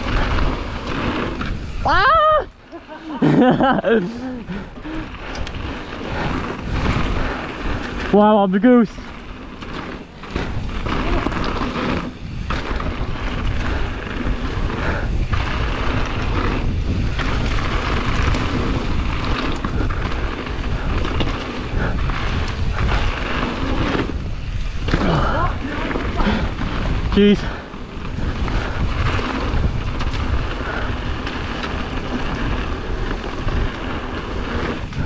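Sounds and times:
wind buffeting microphone: 0.0 - 35.0
tyres crunching over gravel: 2.8 - 35.0.

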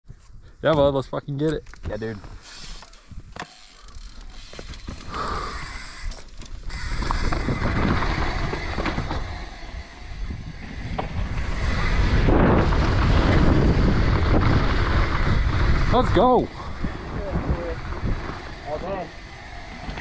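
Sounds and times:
wind on microphone: 6.6 - 20.0
tyres rumbling over dirt and rock: 6.7 - 20.0.

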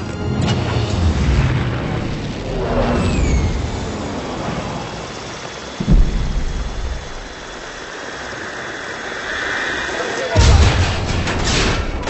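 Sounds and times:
deep rumble: 0.0 - 8.8
bomb explosion: 0.8 - 7.9.

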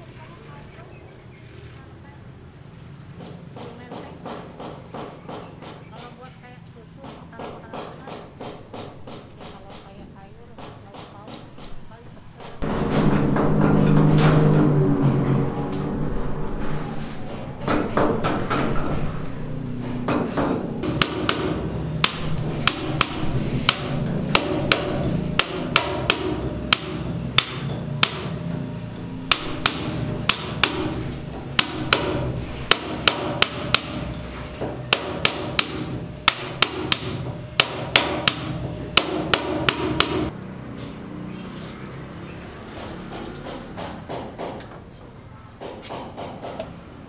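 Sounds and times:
hammer striking a chisel: 3.2 - 6.2, 7.0 - 9.9, 12.4 - 14.8, 17.6 - 19.1, 19.7 - 41.0, 42.8 - 44.8, 45.6 - 46.7.

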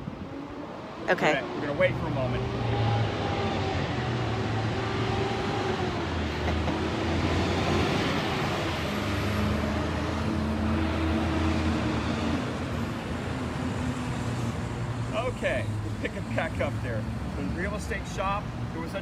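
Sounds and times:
street traffic: 0.0 - 19.0
dump truck diesel engine drone: 1.2 - 14.9.

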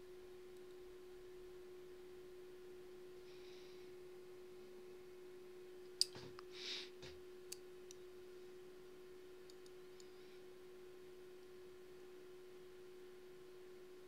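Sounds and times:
faint electrical hum: 0.0 - 14.0
short breathy hiss: 6.5 - 7.0.

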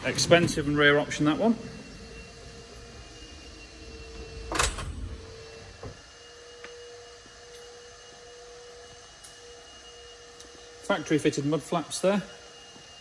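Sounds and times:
motorized sliding door closing: 0.0 - 6.8
faint hum: 0.0 - 13.0.

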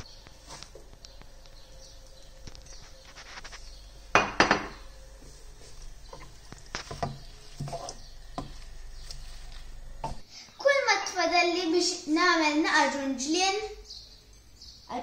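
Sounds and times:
wooden spatula scraping a frying pan: 6.0 - 9.3.

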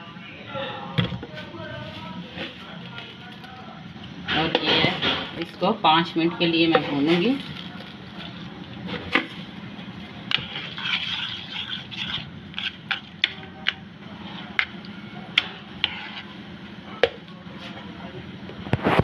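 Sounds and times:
spoon scraping a pan: 10.3 - 13.4, 15.4 - 16.4.

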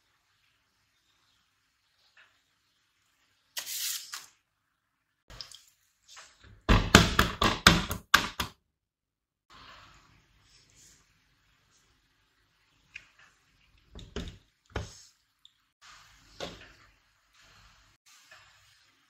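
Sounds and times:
short hiss: 3.6 - 4.3.

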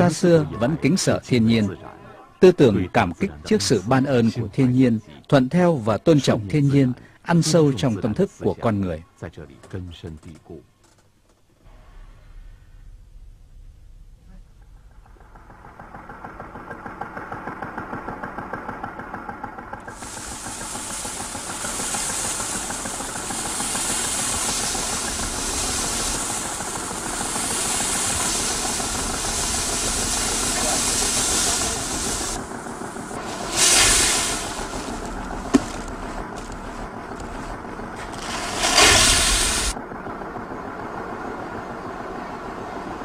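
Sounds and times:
grain streaming through air: 19.9 - 39.8.

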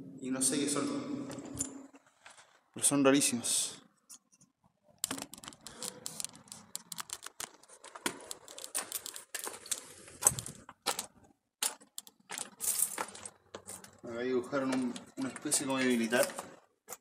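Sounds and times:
camera handling clicks and rustling: 5.0 - 11.1.

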